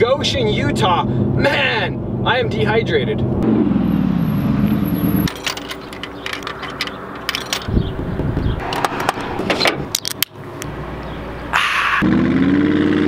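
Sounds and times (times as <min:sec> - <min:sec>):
car engine passing by: 0:08.4 - 0:13.0.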